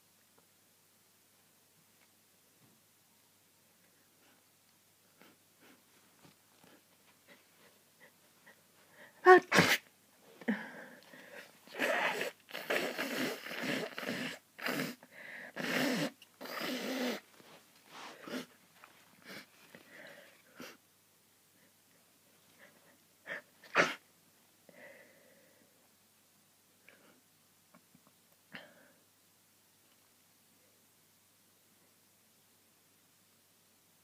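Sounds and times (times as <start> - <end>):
breaths: 6.6 - 9.2, 10.3 - 11.9, 15.0 - 15.6, 19.2 - 20.8, 24.7 - 25.8, 28.5 - 29.0
person sneezing: 9.2 - 9.9, 10.5 - 15.0, 15.6 - 17.2, 23.3 - 24.0.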